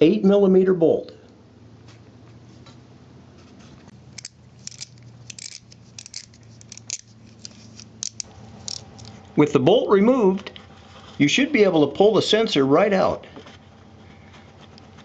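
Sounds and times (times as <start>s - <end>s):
ratchet wrench clicking: 4.1s - 8.8s.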